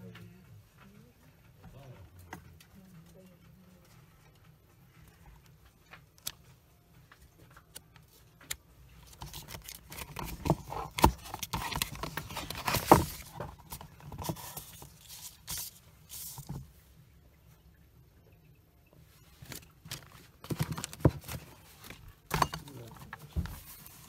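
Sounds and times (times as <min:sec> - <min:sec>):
papers rustling and scraping: 0:05.0 - 0:16.8, 0:19.1 - 0:24.0.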